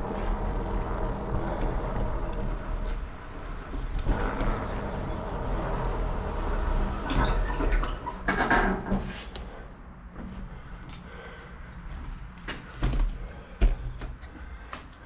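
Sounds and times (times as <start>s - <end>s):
electric motor hum: 0.0s - 7.5s
knocks and rattles: 0.0s - 9.1s.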